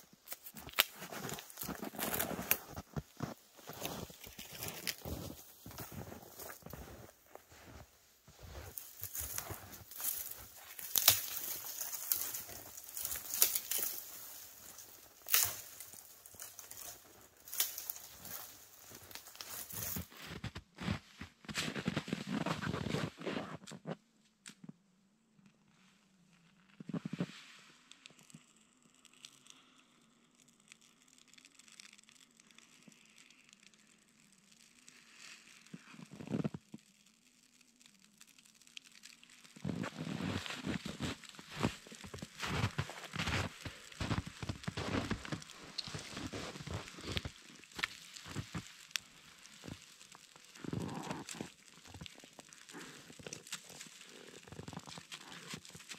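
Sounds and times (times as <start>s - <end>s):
grass fire crackling: 0.0s - 20.3s, 27.7s - 55.9s
boots crunching in snow: 0.2s - 23.5s, 39.6s - 55.9s.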